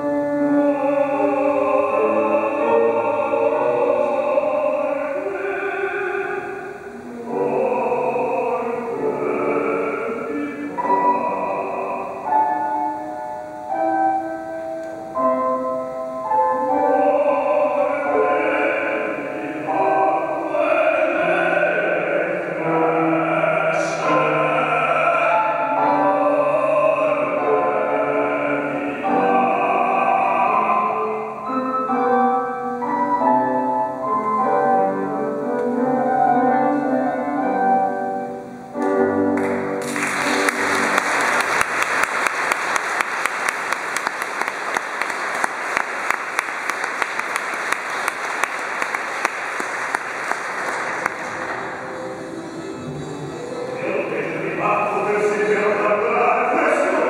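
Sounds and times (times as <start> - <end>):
man singing opera: 0.0 - 12.8, 16.3 - 32.1, 52.2 - 57.0
instrumental accompaniment: 0.0 - 57.0
audience applauding: 39.4 - 52.4.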